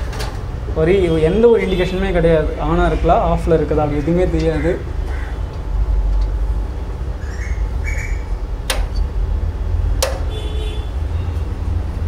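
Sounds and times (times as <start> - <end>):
pliers squeaking: 7.2 - 9.2.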